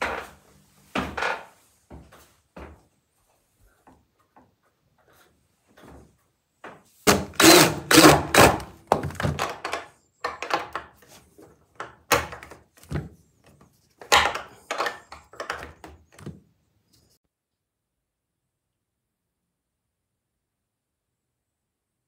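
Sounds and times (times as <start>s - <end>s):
wooden ladder thunks and knocks: 5.8s - 10.9s, 11.8s - 13.2s.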